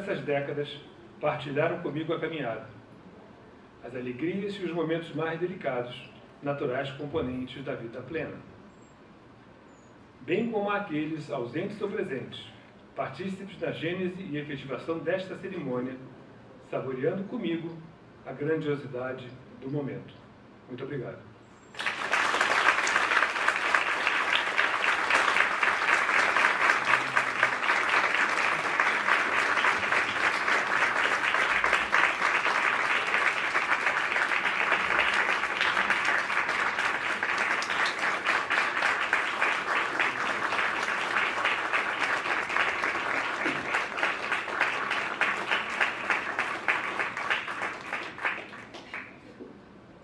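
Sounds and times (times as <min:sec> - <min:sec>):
audience applauding: 0:21.7 - 0:49.2.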